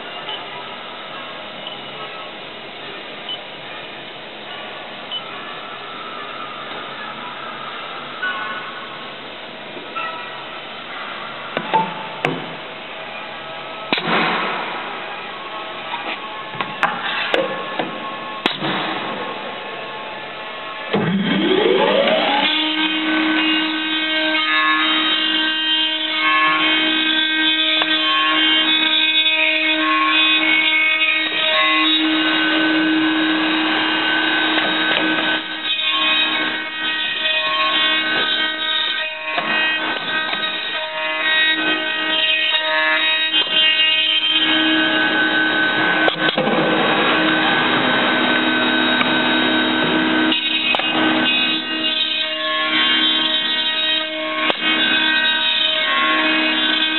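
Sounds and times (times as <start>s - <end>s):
electric motor whining: 20.9s - 53.3s.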